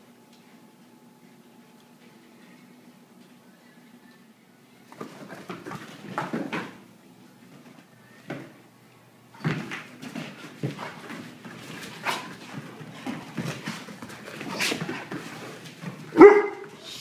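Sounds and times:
dogs scrambling on floor: 4.9 - 6.8, 9.4 - 16.9.

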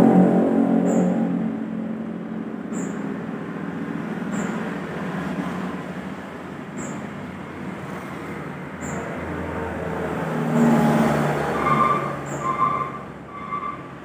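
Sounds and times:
motorbikes passing: 0.0 - 14.0
truck passing: 0.0 - 14.0.

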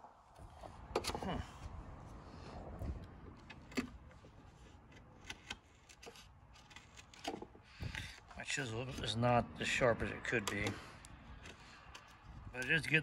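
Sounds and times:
chisel scraping wood: 4.0 - 9.4.

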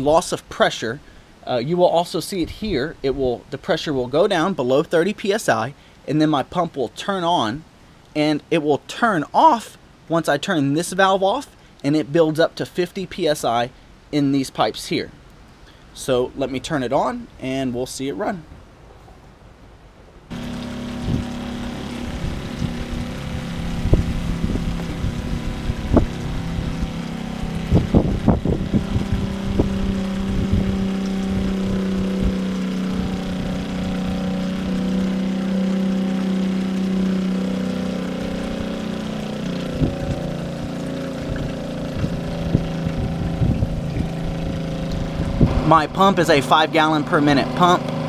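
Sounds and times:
water pump motor hum: 20.3 - 48.0.

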